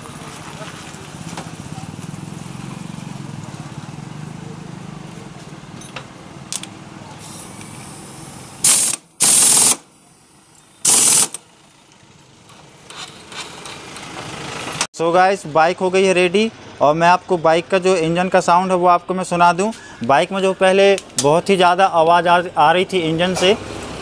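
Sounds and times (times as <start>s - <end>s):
pneumatic tool bursts: 7.1s - 10.0s, 10.8s - 11.4s.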